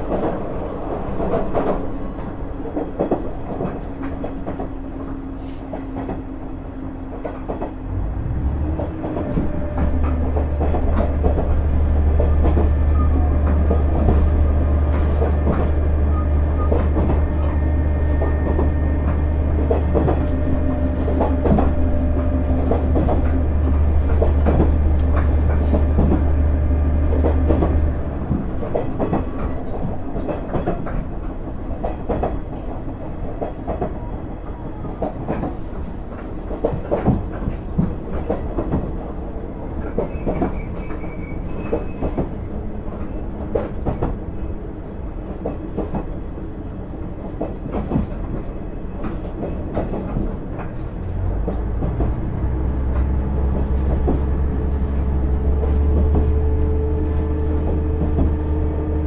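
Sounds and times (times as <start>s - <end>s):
diesel railcar engine drone: 0.0s - 59.0s
train wheel rumble: 0.0s - 59.0s.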